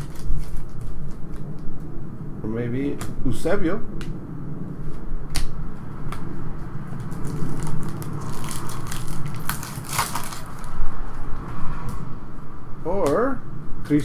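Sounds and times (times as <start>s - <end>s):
wrapper ripping: 0.0s - 1.5s, 6.9s - 10.8s
foil wrapper crinkling: 0.0s - 1.6s, 6.9s - 10.8s
trading cards being handled: 0.0s - 1.7s, 6.1s - 10.8s.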